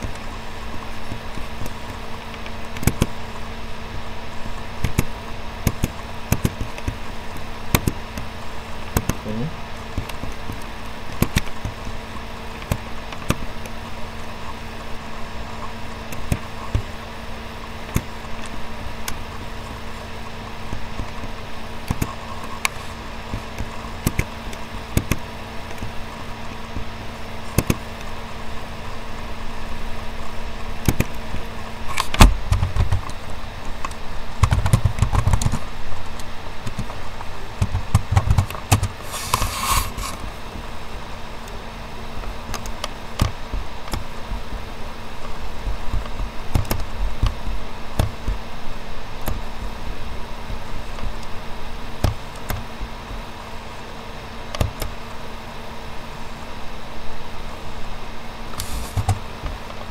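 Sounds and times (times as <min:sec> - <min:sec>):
steady low hum: 0:00.0 - 0:59.9
mouse clicks: 0:02.4 - 0:03.1, 0:04.8 - 0:07.0, 0:07.7 - 0:08.0, 0:09.0 - 0:09.2, 0:25.0 - 0:25.9, 0:27.6 - 0:27.8, 0:30.8 - 0:31.2, 0:45.9 - 0:47.3, 0:54.5 - 0:54.9
keyboard typing: 0:34.4 - 0:35.6, 0:37.6 - 0:40.0, 0:45.9 - 0:47.4, 0:58.6 - 0:59.2.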